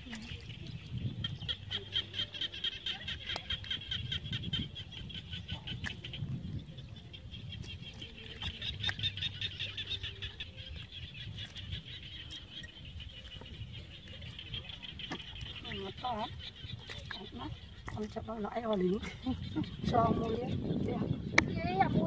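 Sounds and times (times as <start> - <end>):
frogs trilling in chorus: 0.1 - 22.0.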